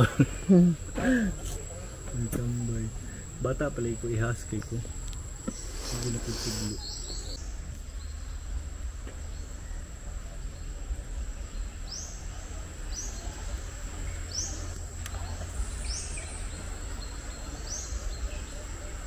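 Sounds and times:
high-pitched insect drone: 2.2s - 8.9s.

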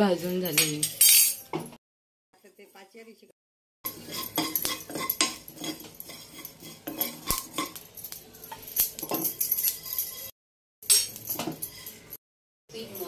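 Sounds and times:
spoon scraping pan: 3.9s - 10.3s, 11.1s - 12.2s.

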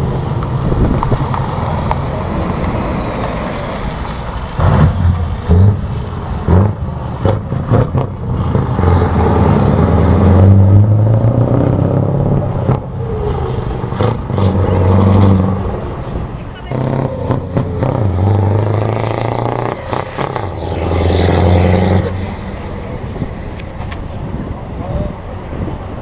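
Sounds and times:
truck engines accelerating: 0.0s - 26.0s.

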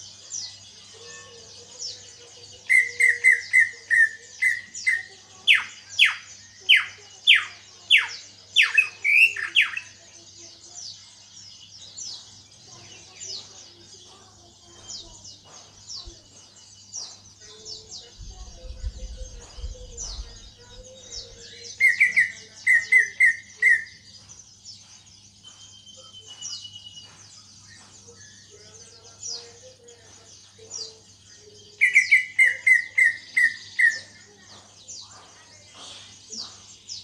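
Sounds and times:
small birds chirping: 0.0s - 37.0s
bird singing repeated notes: 12.2s - 37.0s.

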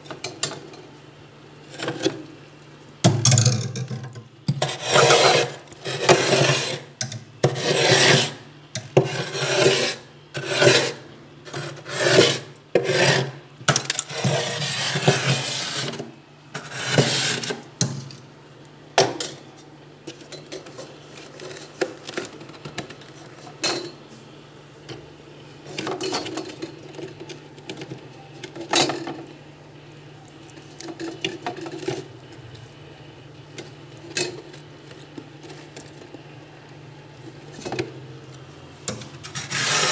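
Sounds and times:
spoon scraping frost: 4.5s - 13.4s, 14.0s - 17.7s, 39.2s - 39.9s.

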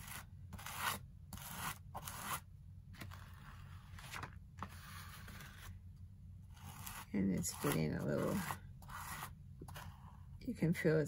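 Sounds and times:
plastic scraper scraping paste: 0.0s - 2.4s, 6.5s - 10.2s.

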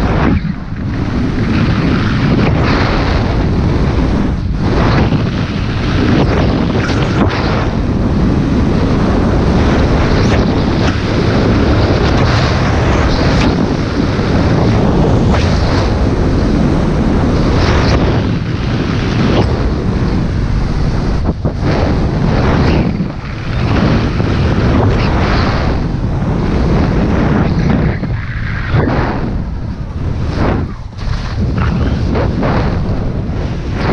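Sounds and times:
wind buffeting microphone: 0.0s - 33.9s
skis scraping on snow: 30.1s - 33.9s.

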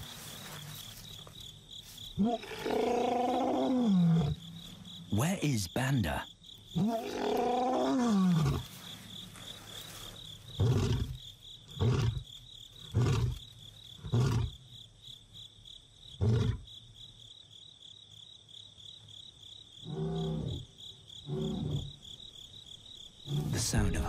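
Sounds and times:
crickets chirping: 0.0s - 24.0s
lion roaring: 2.2s - 4.4s, 6.8s - 8.7s, 10.5s - 12.3s, 12.9s - 13.4s, 23.2s - 24.0s.

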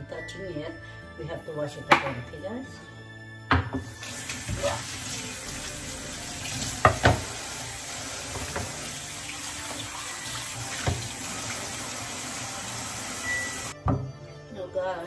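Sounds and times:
tap running into steel sink: 6.6s - 7.4s, 10.7s - 11.2s.

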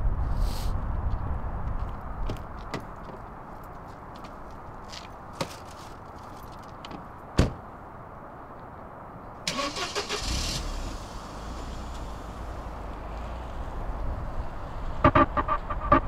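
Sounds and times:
car door slamming: 7.4s - 7.6s
car engine starting and idling: 9.5s - 16.0s.

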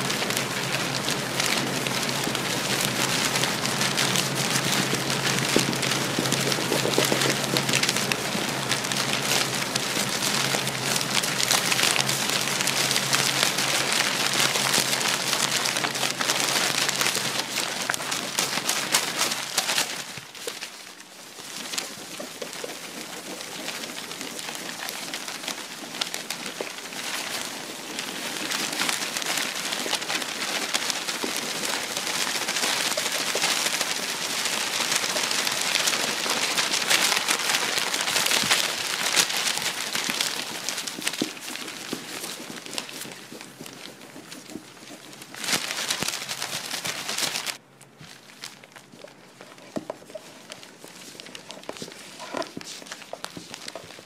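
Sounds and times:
steady rain: 0.0s - 41.6s.

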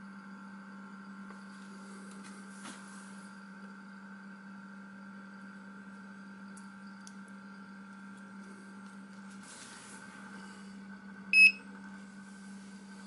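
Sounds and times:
faint steady hum: 0.0s - 13.0s
battery charger beep: 11.3s - 11.7s.

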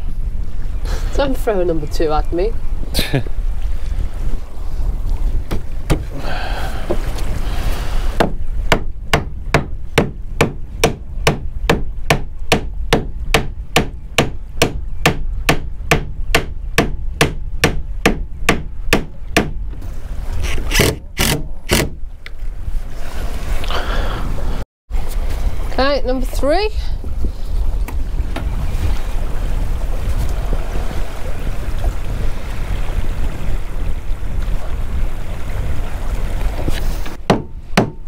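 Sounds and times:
hammer knocking wood: 5.5s - 6.1s, 8.2s - 19.6s, 37.2s - 38.0s.

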